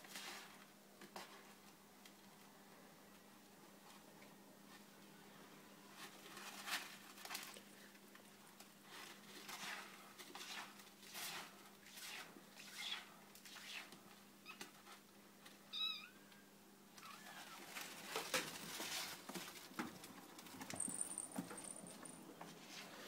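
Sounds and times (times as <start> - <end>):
kittens scuffling: 5.9 - 7.8, 17.0 - 23.0.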